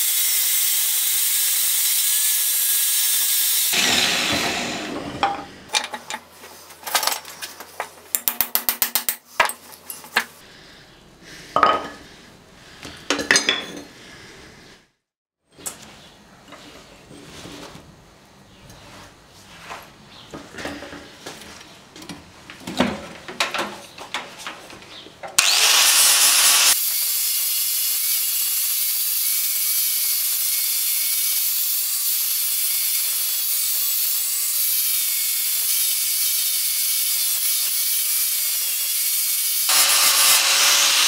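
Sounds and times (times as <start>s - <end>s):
angle grinder grinding metal: 0.0s - 6.1s, 25.4s - 41.0s.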